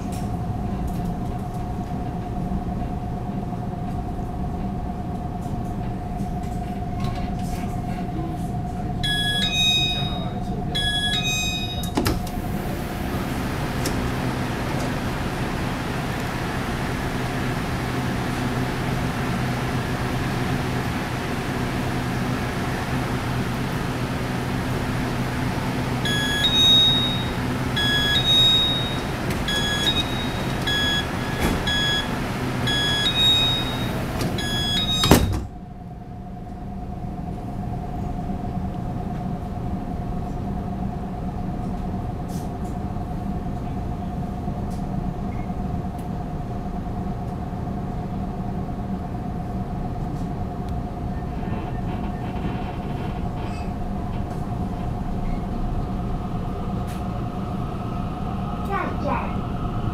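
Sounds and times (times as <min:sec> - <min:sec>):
train hum: 0:00.0 - 0:59.9
train whine pulling away: 0:00.0 - 0:59.9
door-closing warning beeps: 0:09.0 - 0:12.5, 0:25.9 - 0:35.5
sliding doors thudding shut: 0:11.9 - 0:19.3, 0:23.9 - 0:35.5.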